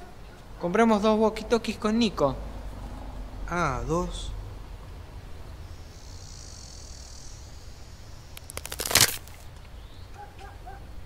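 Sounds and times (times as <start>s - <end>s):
plastic crackling crunch: 8.4s - 9.6s.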